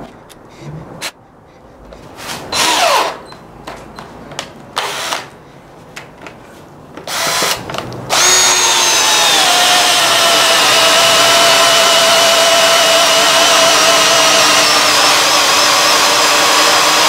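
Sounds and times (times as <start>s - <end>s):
cordless drill boring into wood: 2.6s - 3.3s, 4.8s - 5.3s, 7.1s - 17.0s.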